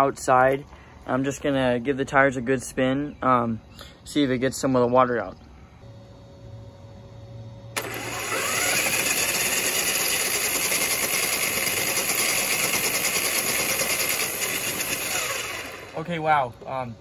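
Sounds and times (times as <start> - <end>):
electric motor whine: 5.8 - 17.0.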